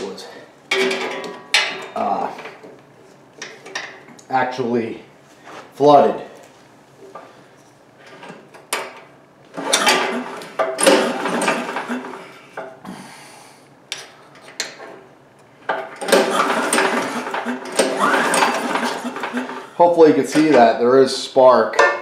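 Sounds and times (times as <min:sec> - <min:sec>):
recoil starter cranking engine: 0:09.5 - 0:12.5, 0:15.7 - 0:20.6.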